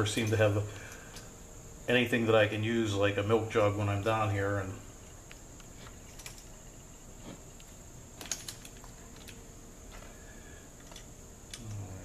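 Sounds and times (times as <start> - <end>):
small tools clicking and tapping: 5.2 - 6.5, 7.3 - 10.2, 10.8 - 11.9.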